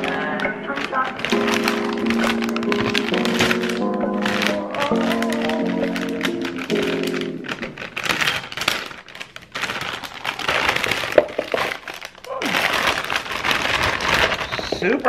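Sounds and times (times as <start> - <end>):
plastic bag crinkling: 0.0 - 15.0
potatoes knocking into plastic bowl: 11.1 - 11.8.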